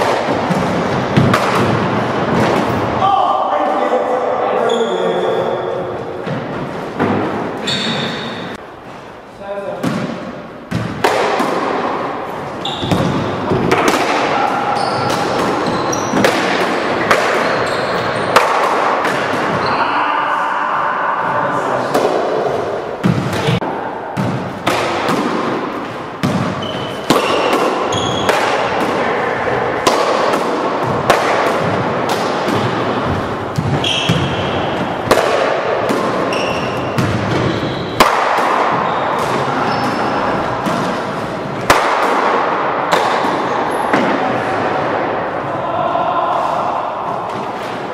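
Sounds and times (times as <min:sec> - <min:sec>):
ball hitting racquets and walls: 0:00.0 - 0:03.1, 0:05.9 - 0:08.6, 0:09.7 - 0:19.8, 0:21.2 - 0:45.4, 0:46.2 - 0:47.9
sneaker squeaks on hardwood floor: 0:04.6 - 0:05.6, 0:07.6 - 0:08.6, 0:12.6 - 0:13.7, 0:14.7 - 0:16.3, 0:17.4 - 0:18.4, 0:26.4 - 0:28.4, 0:33.6 - 0:34.8, 0:36.2 - 0:38.0, 0:38.8 - 0:40.3.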